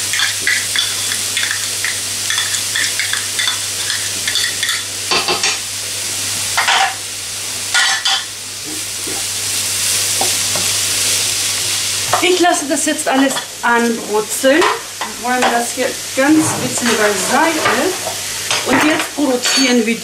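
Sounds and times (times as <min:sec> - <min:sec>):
vegetables sizzling in a pan: 0:00.0 - 0:20.0
wooden spatula scraping a pan: 0:16.2 - 0:18.2.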